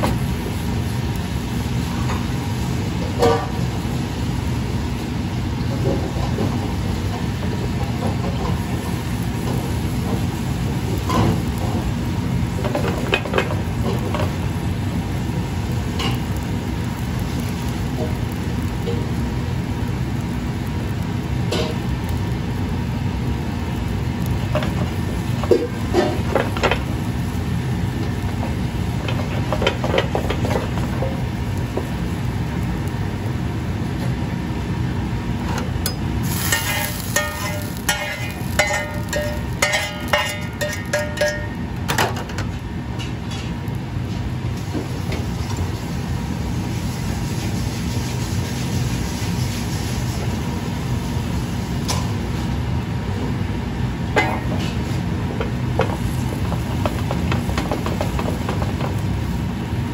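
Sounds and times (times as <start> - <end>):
gas stove burners rushing: 0.0 - 59.9
broth simmering: 0.4 - 41.9
pans and utensils clinking: 25.4 - 26.8, 35.9 - 43.5, 54.2 - 54.8
metal pan clattering: 36.5 - 41.6.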